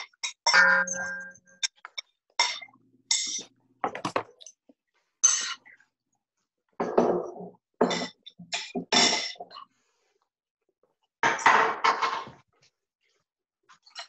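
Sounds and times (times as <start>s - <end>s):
utensil clinking on metal bowl: 0.2s - 1.8s.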